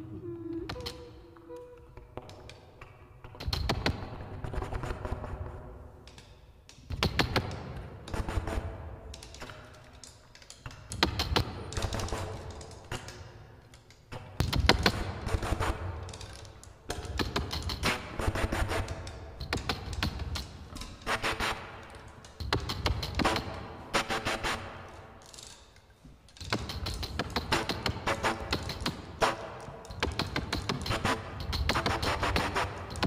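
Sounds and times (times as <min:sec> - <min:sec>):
zither strings tapped and rattled: 0:18.8 - 0:33.0.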